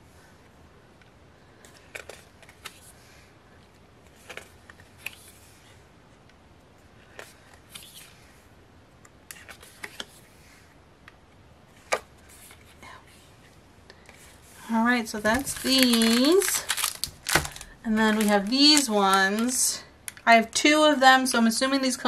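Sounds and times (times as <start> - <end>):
paper rustling: 15.2 - 19.6
stiff pages clicking: 15.3 - 20.2.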